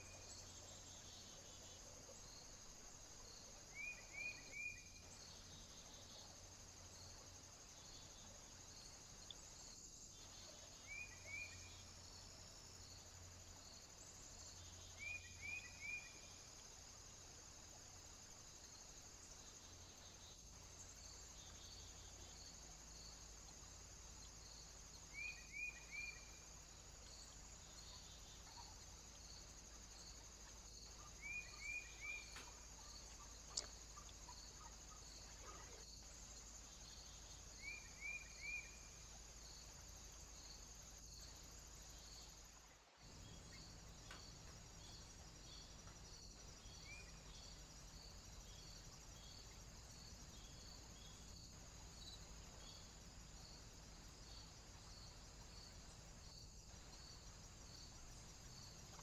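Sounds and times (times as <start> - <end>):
insects chirring: 0.0 - 59.0.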